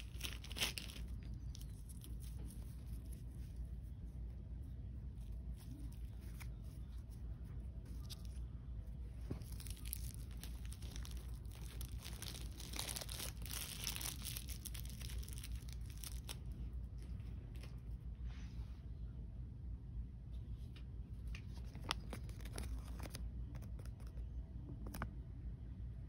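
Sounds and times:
plastic packaging crinkling and tearing: 0.0s - 3.5s, 5.2s - 8.4s, 9.1s - 17.8s, 21.5s - 24.1s.

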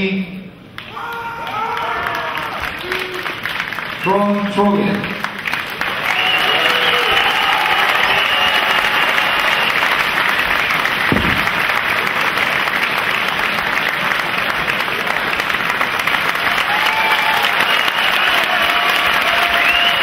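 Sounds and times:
crowd applauding: 0.7s - 20.0s
low thump: 11.1s - 11.8s.

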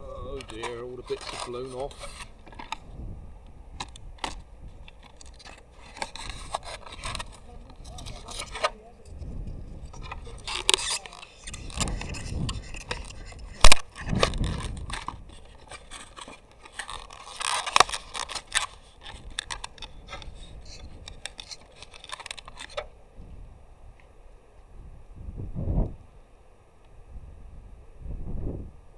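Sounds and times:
plastic toys scraping and clicking: 0.4s - 2.8s, 3.8s - 22.9s.

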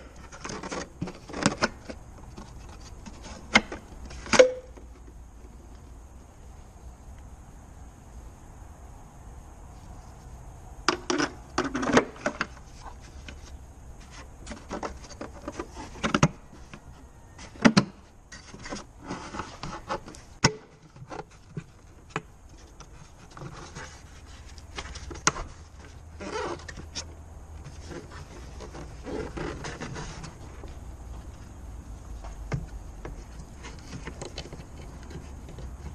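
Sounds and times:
plastic scraping and rubbing: 0.0s - 5.1s, 10.9s - 17.7s, 18.3s - 30.8s, 32.5s - 35.9s.

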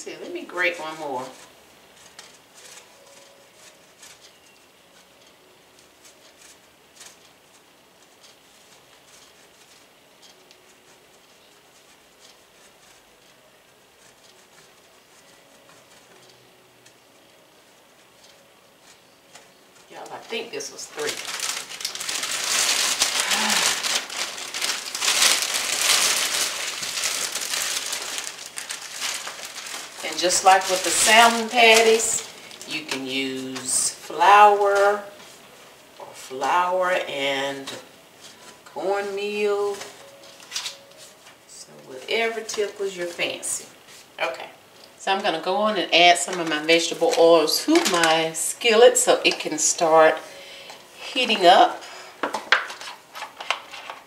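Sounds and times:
plastic bag crinkling: 0.1s - 17.5s, 18.1s - 54.0s
bread scratching on grater: 0.2s - 5.1s, 6.0s - 16.3s.

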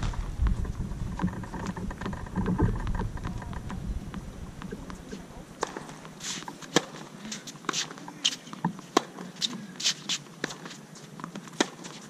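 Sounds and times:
tennis shoes scuffing court: 4.9s - 12.0s
racket hitting ball: 5.6s - 10.7s, 11.4s - 12.0s.

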